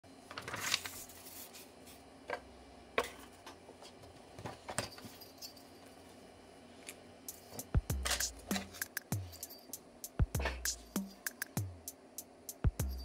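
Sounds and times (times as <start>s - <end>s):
paper rustling: 0.3s - 1.7s.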